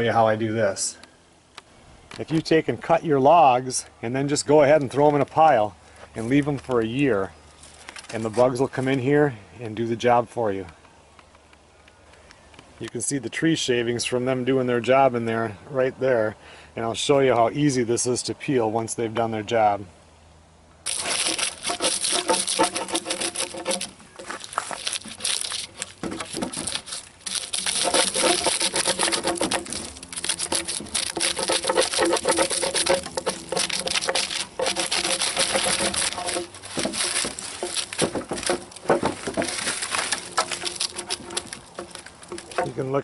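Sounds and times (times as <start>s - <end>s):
bark tearing off a log: 20.9s - 42.8s.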